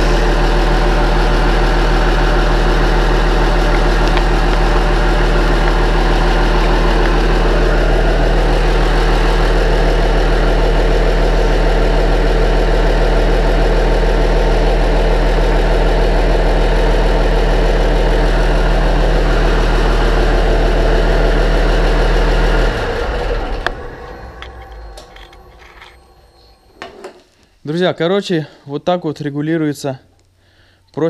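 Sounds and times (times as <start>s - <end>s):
diesel tractor engine running: 0.0s - 26.9s
engine running down: 0.0s - 27.2s.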